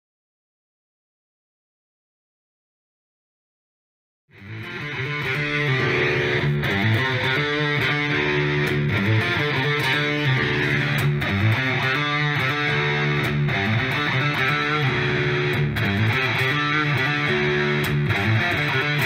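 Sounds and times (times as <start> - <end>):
instrumental guitar music: 4.3 - 19.0.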